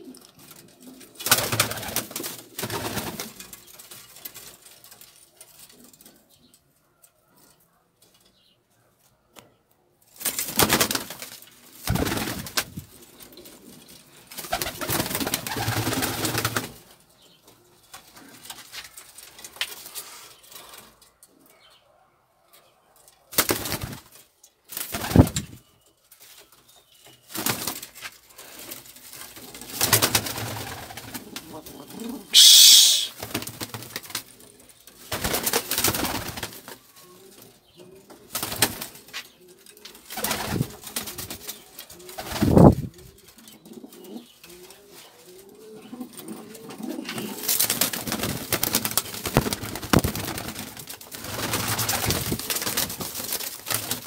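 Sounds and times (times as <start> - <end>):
wings flapping: 11.8 - 12.8, 14.4 - 16.7, 24.8 - 25.5, 32.4 - 34.2, 42.2 - 42.9, 47.4 - 54.0
pigeons cooing: 29.8 - 33.1, 42.0 - 47.7.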